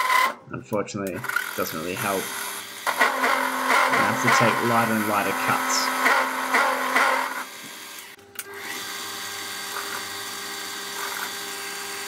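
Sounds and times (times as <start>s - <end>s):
lathe tool chattering: 1.2s - 8.1s
lathe running with steady hum: 1.2s - 12.0s.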